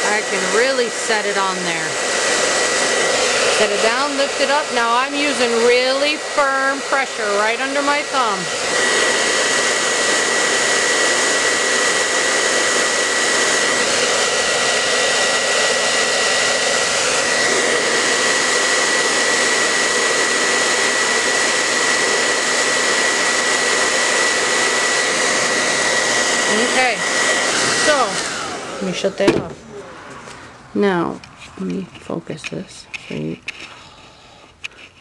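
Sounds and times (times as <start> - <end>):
hair dryer blowing air: 0.0 - 31.8.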